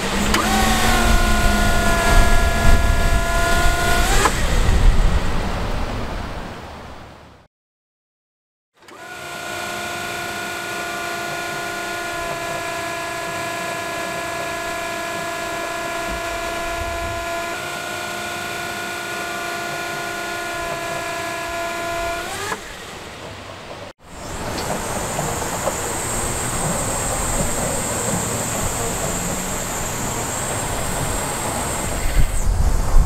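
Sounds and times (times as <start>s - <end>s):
hydraulic pump motor whining: 0.0s - 5.4s, 8.8s - 23.4s, 24.0s - 33.0s
noisy machine running: 0.0s - 5.7s, 8.8s - 33.0s.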